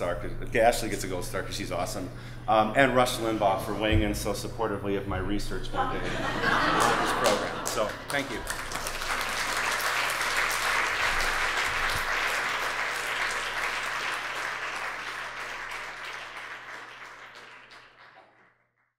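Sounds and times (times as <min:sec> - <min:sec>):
audience applauding: 0:06.4 - 0:18.6.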